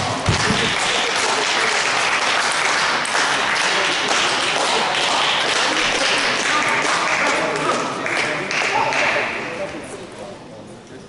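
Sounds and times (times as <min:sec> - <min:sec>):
spectators applauding: 0:00.0 - 0:09.5.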